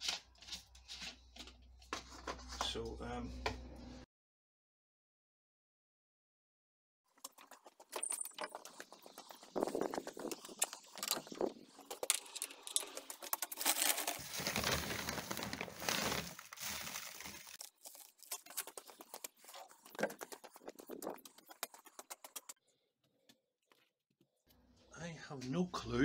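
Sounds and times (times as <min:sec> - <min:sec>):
plastic sack crinkling: 0:07.8 - 0:21.7.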